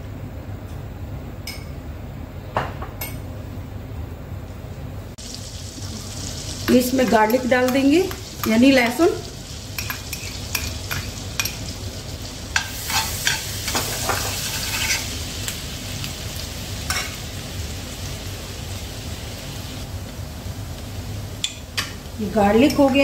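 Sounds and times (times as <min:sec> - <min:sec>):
garlic sizzling in frying pan: 0:05.2 - 0:23.0
spoon scraping a pan: 0:09.8 - 0:11.6, 0:12.6 - 0:15.1.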